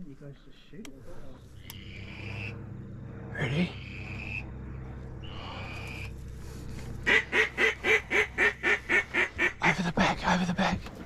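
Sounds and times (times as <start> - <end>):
duck quacking: 7.1 - 10.0.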